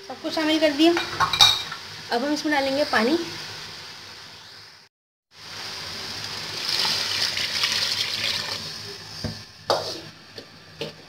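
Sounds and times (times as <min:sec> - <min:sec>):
water pouring into a pot: 0:05.4 - 0:09.0.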